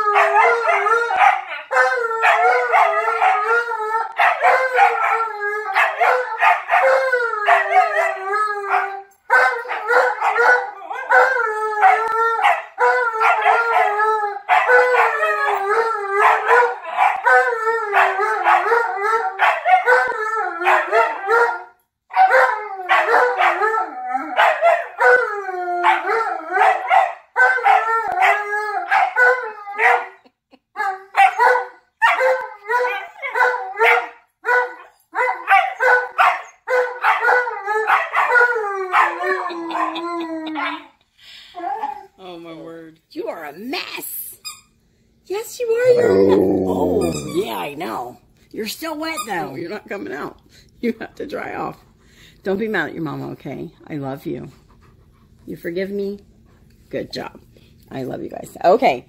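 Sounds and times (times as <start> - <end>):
dogs howling: 0.0 - 30.2, 30.8 - 41.0, 45.8 - 48.0.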